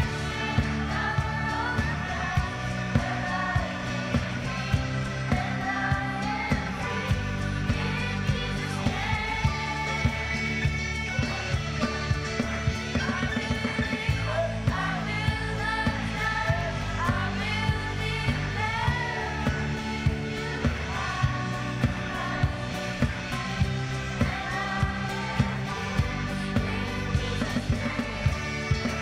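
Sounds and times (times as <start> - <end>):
children's choir singing: 0.0 - 11.4, 13.0 - 29.0
bass: 0.0 - 29.0
keyboard: 0.0 - 29.0
steady drum beat: 0.0 - 29.0.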